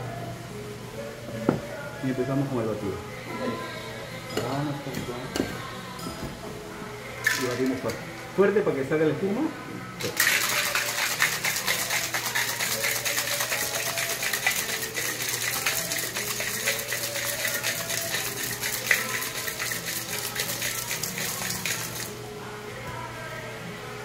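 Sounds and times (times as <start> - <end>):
ice rattling in cocktail shaker: 7.2 - 7.9, 10.0 - 22.2.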